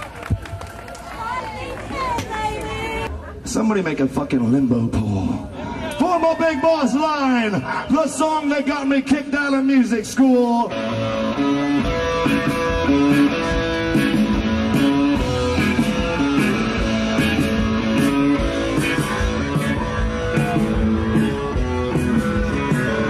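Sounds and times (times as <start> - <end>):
rock band playing: 10.6 - 23.0.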